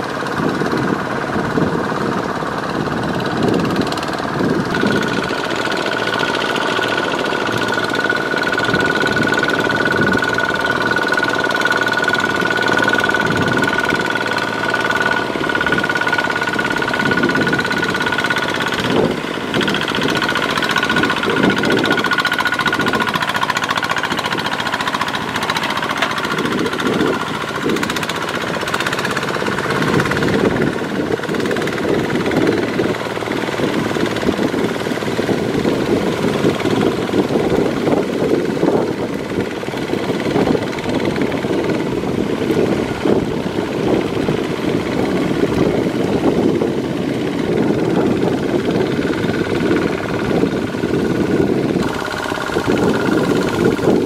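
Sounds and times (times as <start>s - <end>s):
diesel engine knocking under load: 0.0s - 54.0s
wheels churning through mud: 0.0s - 54.0s.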